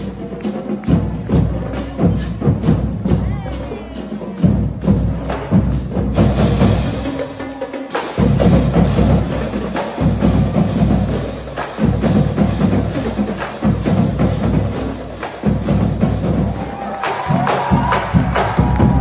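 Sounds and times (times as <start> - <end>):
bass drum hits: 17.3 - 19.0.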